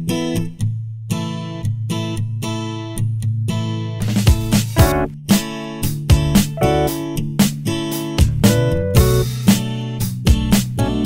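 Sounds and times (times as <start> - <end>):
strummed acoustic guitar chords: 4.0 - 9.8.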